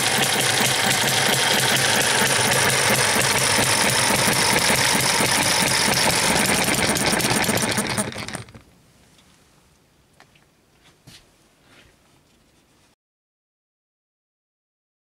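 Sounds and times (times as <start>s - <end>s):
model engine clattering: 0.0s - 8.6s.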